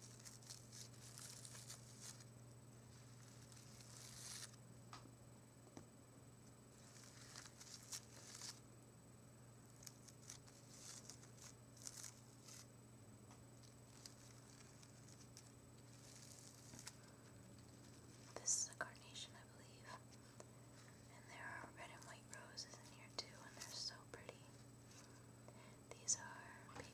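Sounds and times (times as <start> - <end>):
fingers rustling flower petals: 0.0 - 4.6, 6.7 - 8.6, 9.7 - 12.7, 13.6 - 18.6, 20.0 - 21.2, 23.5 - 25.3.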